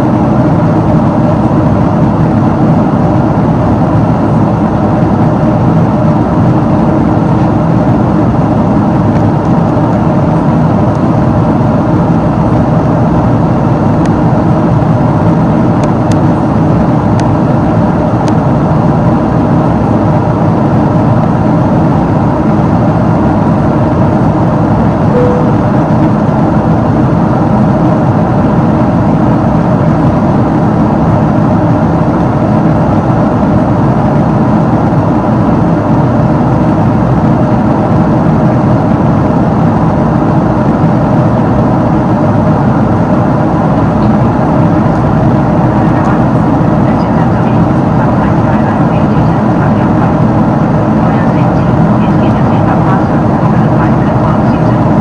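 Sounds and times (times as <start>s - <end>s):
aircraft cabin engine rush: 0.0s - 55.0s
faint hum: 0.0s - 55.0s.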